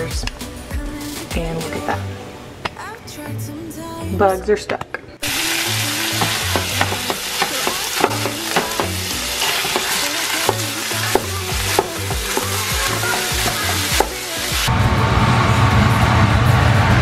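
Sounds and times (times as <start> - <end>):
meat sizzling in a skillet: 5.2 - 14.7.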